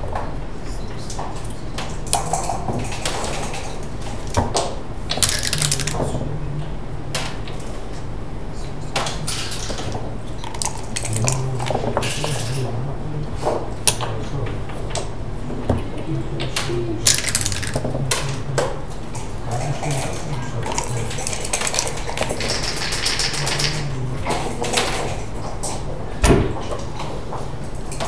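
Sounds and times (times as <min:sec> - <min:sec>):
steady low hum: 0:00.0 - 0:28.0
dice clattering on board: 0:04.3 - 0:06.1, 0:10.4 - 0:12.6, 0:17.1 - 0:18.3, 0:20.6 - 0:23.9
checkers clicking: 0:05.1 - 0:06.2, 0:09.3 - 0:12.7, 0:16.4 - 0:18.5, 0:19.7 - 0:25.2.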